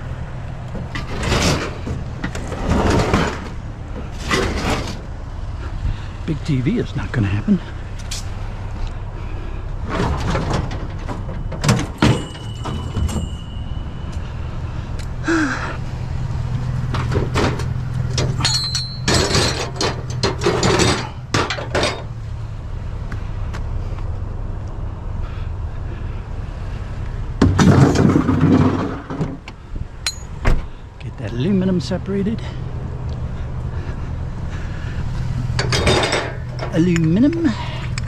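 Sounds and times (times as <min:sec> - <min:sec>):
scrap metal clanking: 0:00.8 - 0:05.1, 0:16.8 - 0:22.2, 0:27.4 - 0:29.4, 0:34.6 - 0:38.0.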